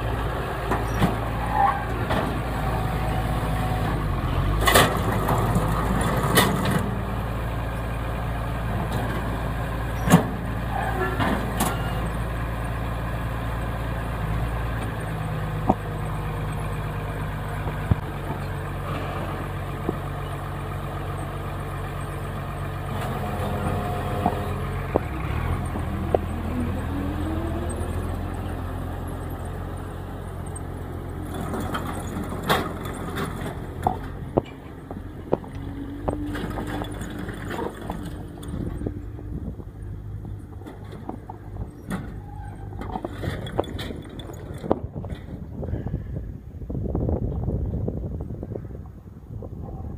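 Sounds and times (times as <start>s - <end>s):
tractor engine running: 0.0s - 49.9s
metal clanks and knocks: 10.0s - 12.1s, 31.2s - 39.3s, 40.2s - 45.4s.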